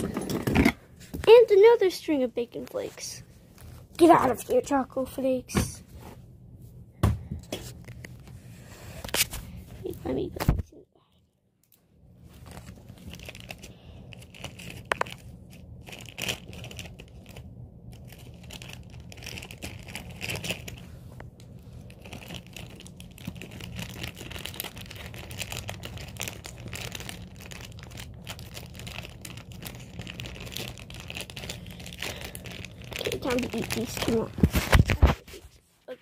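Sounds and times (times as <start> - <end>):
low steady hum: 0.0 - 36.0
plastic bag crinkling: 12.3 - 35.2.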